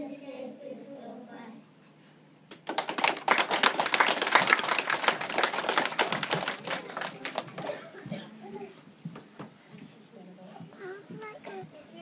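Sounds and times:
audience applauding: 0:02.5 - 0:07.8.

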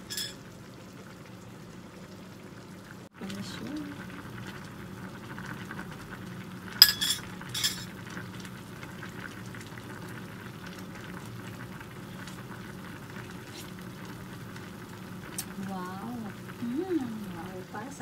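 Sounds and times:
metal ladle clinking on plate: 0:00.0 - 0:00.4, 0:06.8 - 0:07.9
soup bubbling in a pan: 0:00.0 - 0:18.0.

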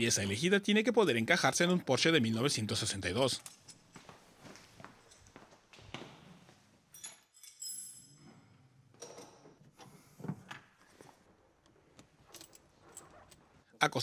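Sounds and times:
metallic jingle: 0:06.9 - 0:08.4.

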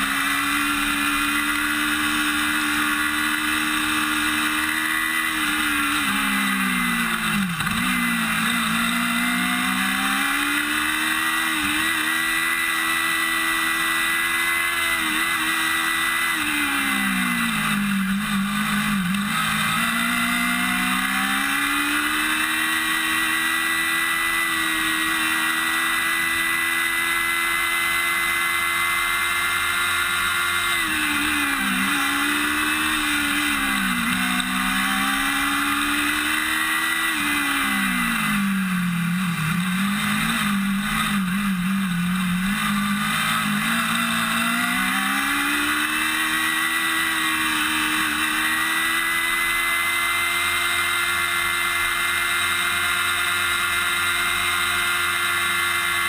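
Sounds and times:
race car engine revving: 0:00.0 - 0:56.0.

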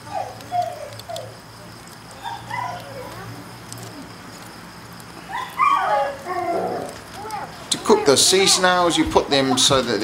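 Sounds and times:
dog whining and yelping: 0:00.0 - 0:01.4, 0:02.2 - 0:03.2, 0:05.3 - 0:07.5.

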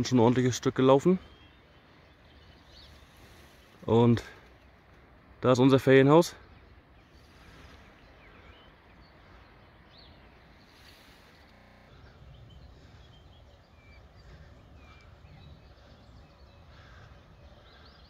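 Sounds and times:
low steady rumble: 0:06.6 - 0:18.0.

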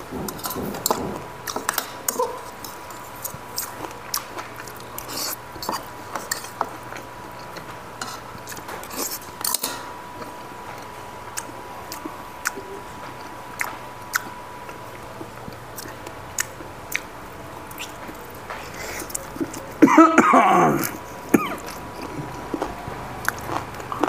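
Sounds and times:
chewing and mouth clicks: 0:01.5 - 0:09.6, 0:11.3 - 0:17.1, 0:17.7 - 0:19.8, 0:20.8 - 0:24.0.

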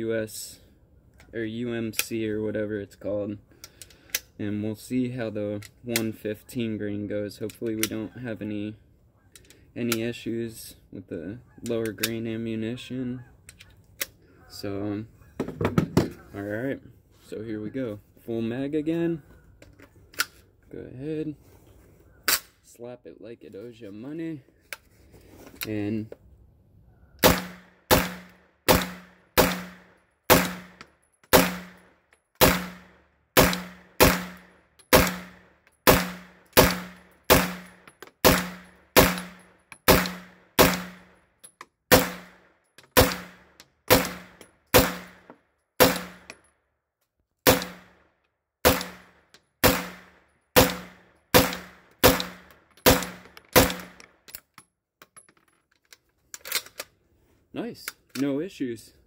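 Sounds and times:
gunshots: 0:27.2 - 0:31.8, 0:32.4 - 0:41.0, 0:41.9 - 0:42.4, 0:43.0 - 0:45.2, 0:45.8 - 0:46.2, 0:47.5 - 0:48.0, 0:48.6 - 0:54.0.

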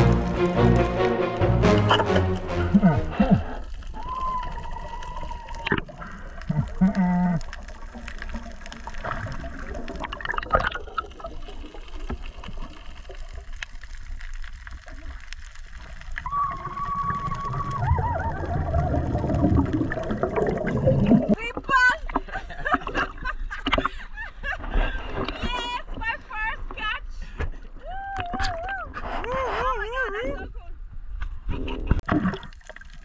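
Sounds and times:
rush of bubbles: 0:00.0 - 0:21.4, 0:32.0 - 0:33.0
muffled underwater noise: 0:16.3 - 0:22.2.

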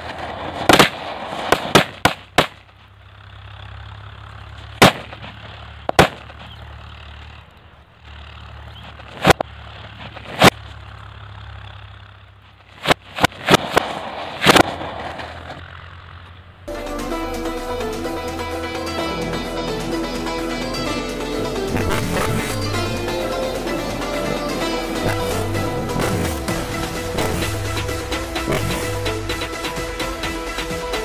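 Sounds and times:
firecrackers exploding: 0:00.0 - 0:02.6, 0:13.2 - 0:15.6, 0:21.7 - 0:30.8.

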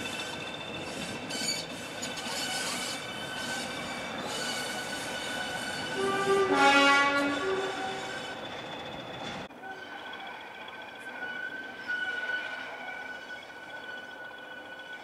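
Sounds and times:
rail traffic: 0:00.0 - 0:15.0
two-tone locomotive horn: 0:05.8 - 0:08.2.

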